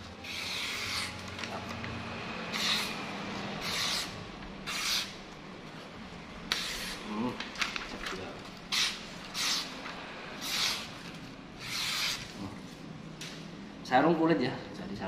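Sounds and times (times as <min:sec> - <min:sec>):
paper rustling: 0:07.2 - 0:08.6.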